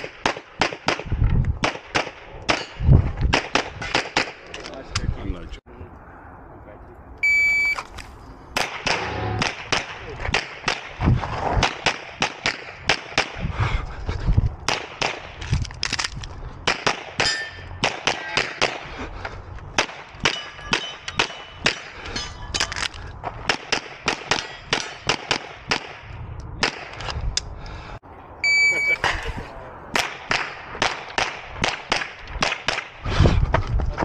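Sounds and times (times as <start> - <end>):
rapid handgun fire: 8.6 - 11.0
steel targets ringing: 17.2 - 18.6, 20.3 - 22.8.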